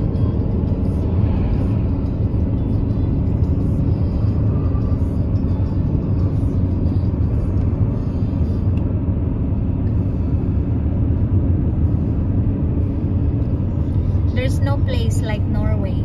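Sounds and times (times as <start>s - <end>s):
vehicle rumble from inside cabin: 0.0s - 16.0s.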